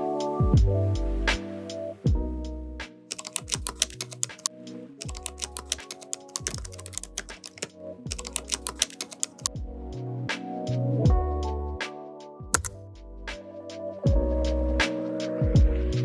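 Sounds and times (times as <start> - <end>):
background music with bass: 0.0 - 5.8, 9.4 - 16.0
keyboard typing clicks: 3.1 - 9.5, 12.5 - 12.8.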